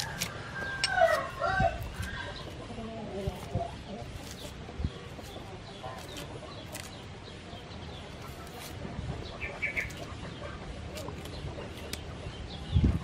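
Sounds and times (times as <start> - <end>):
small birds calling: 0.0 - 13.0
chickens clucking: 0.2 - 13.0.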